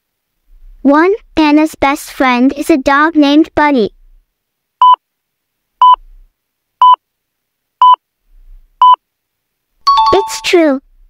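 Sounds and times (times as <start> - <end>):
electronic timer beeps: 5.8 - 6.0, 9.9 - 10.5.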